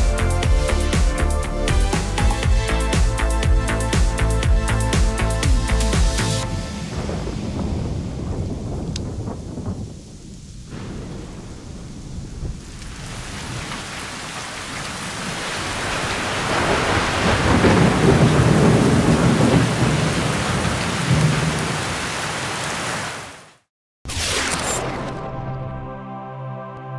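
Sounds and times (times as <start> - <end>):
rain: 6.2 - 23.7
thunder rumbling: 6.4 - 22.3.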